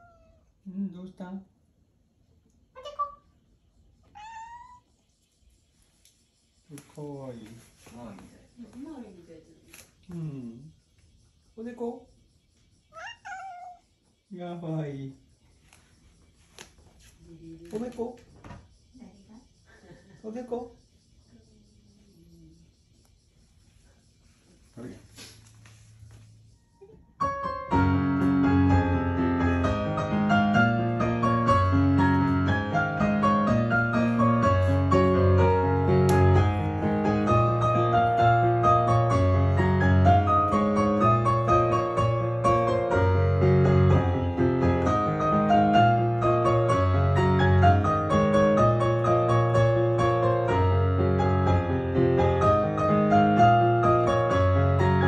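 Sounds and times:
slow piano piece: 0:26.5 - 0:55.0.

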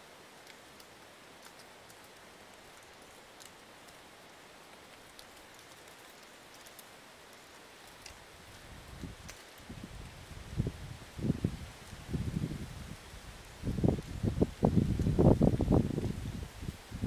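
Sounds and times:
soft breeze hiss: 0:00.0 - 0:17.0
light ticks: 0:00.4 - 0:10.1.

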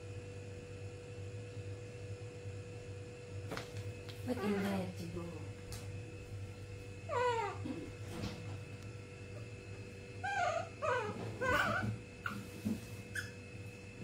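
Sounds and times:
baby monkey calling: 0:10.2 - 0:12.4.

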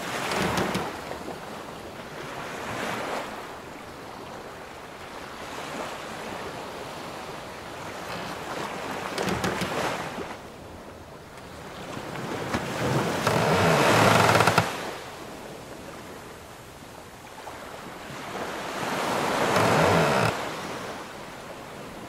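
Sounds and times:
sea waves washing against ship: 0:00.0 - 0:22.0
ship timbers creaking: 0:00.1 - 0:01.1, 0:09.0 - 0:10.0, 0:12.9 - 0:14.9, 0:19.2 - 0:20.4.

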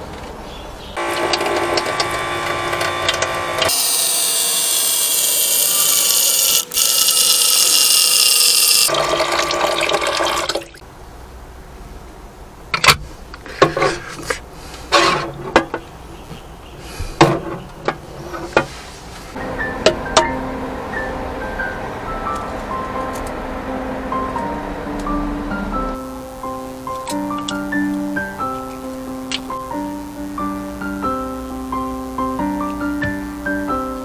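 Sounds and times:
faucet water splashing into metal sink: 0:08.8 - 0:10.8.

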